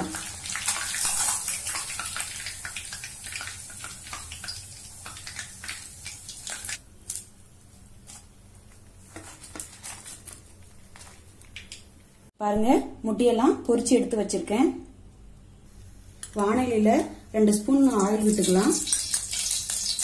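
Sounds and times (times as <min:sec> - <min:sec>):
hot oil sizzling and crackling: 0:00.0 - 0:06.8, 0:17.8 - 0:20.0.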